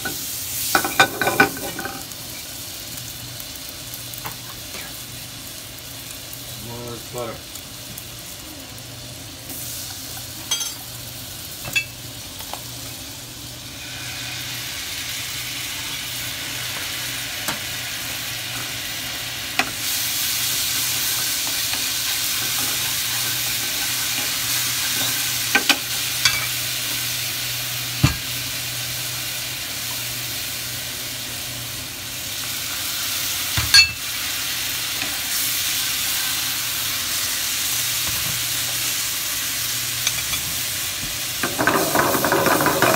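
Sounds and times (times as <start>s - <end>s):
butter sizzling in a frying pan: 0.0s - 42.9s.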